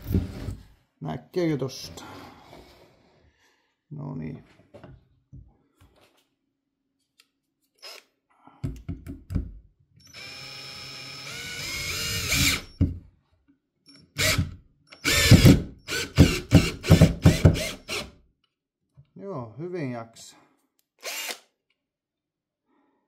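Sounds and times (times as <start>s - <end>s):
drill motor whining: 10.0s - 12.8s, 14.2s - 16.6s, 21.0s - 21.4s.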